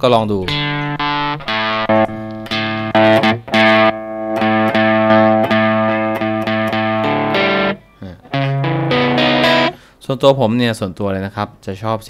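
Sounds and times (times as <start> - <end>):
distorted electric guitar chords: 0.4 - 9.8.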